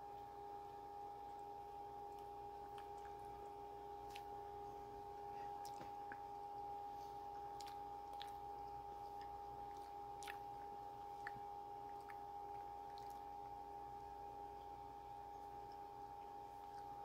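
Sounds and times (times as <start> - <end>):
low hum: 0.0 - 17.0
person chewing food: 2.0 - 13.9.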